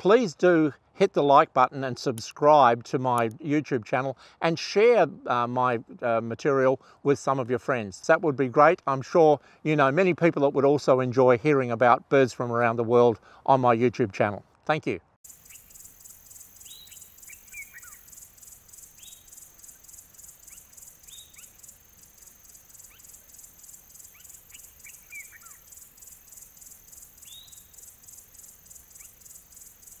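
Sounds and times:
pulsing insect chorus: 0:15.2 - 0:30.0
short bird calls: 0:16.5 - 0:28.0.

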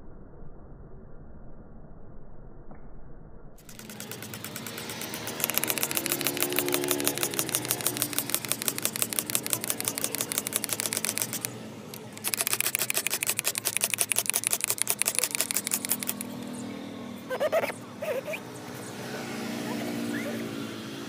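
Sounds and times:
cleaning tool clicking and rattling: 0:03.6 - 0:16.5, 0:17.3 - 0:18.4.

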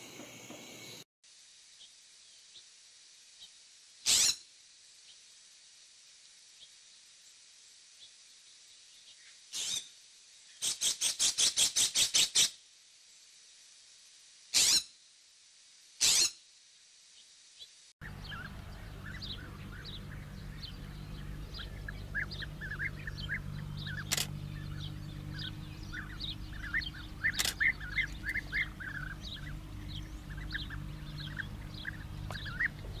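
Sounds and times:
small birds chirping: 0:06.3 - 0:12.5, 0:17.2 - 0:33.0
low steady hum: 0:18.0 - 0:33.0
sharp clicks: 0:23.9 - 0:24.4, 0:27.2 - 0:28.4.

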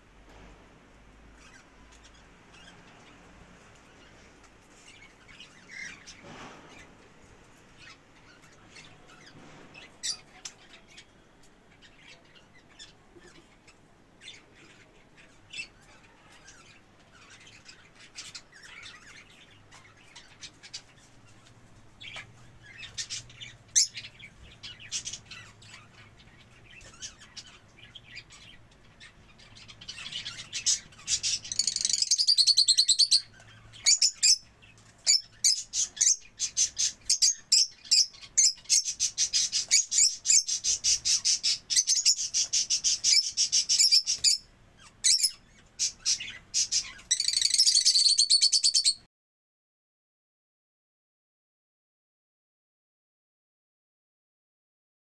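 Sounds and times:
budgerigars chirping: 0:22.0 - 0:49.0.

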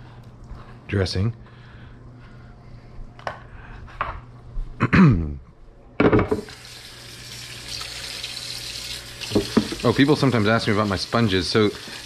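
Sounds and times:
faucet water splashing in sink: 0:06.5 - 0:12.0.

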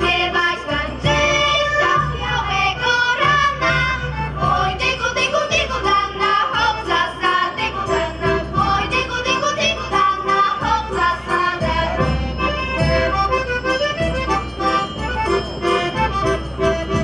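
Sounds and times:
girls singing folk song: 0:00.0 - 0:12.4
accordion: 0:00.0 - 0:17.0.

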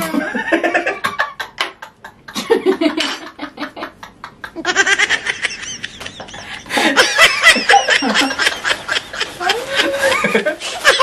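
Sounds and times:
people laughing: 0:00.0 - 0:11.0
high squealing laugh: 0:07.2 - 0:11.0.

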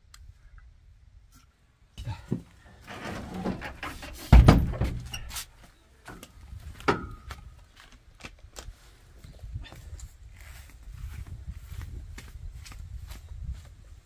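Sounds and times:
heavy thump: 0:02.3 - 0:05.3.

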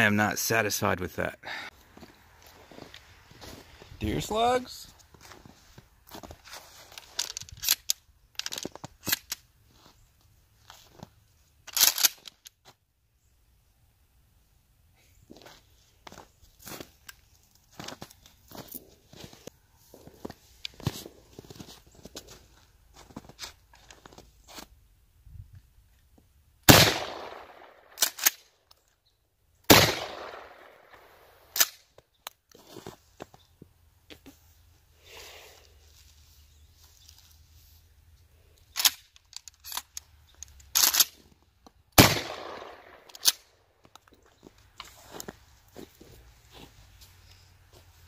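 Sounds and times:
shells clicking into shotgun: 0:11.7 - 0:12.5, 0:38.7 - 0:41.2, 0:42.2 - 0:44.2
shotgun shots echoing: 0:26.7 - 0:28.0, 0:29.7 - 0:31.3, 0:42.0 - 0:43.1.

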